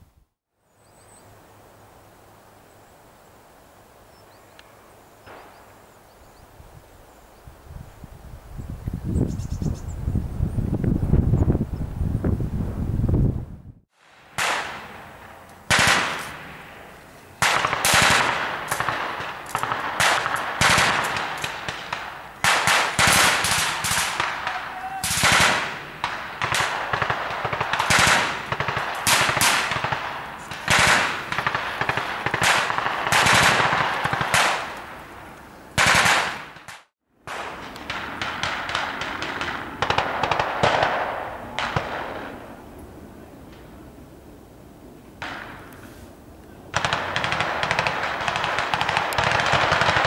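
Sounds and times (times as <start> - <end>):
gunfire with echo: 14.0 - 34.8, 35.8 - 42.5, 46.7 - 50.0.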